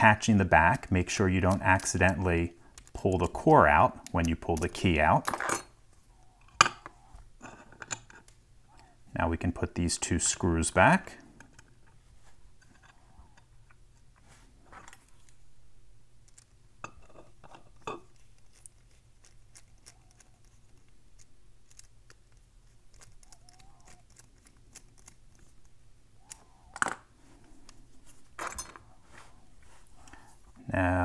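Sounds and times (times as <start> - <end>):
small metallic clicks and ticks: 16.2 - 27.0.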